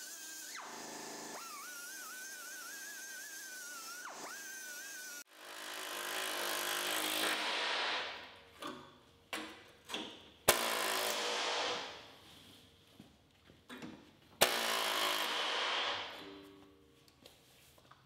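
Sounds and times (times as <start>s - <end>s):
angle grinder on steel: 0.0s - 7.6s
power tool working metal: 0.0s - 8.0s, 14.4s - 16.2s.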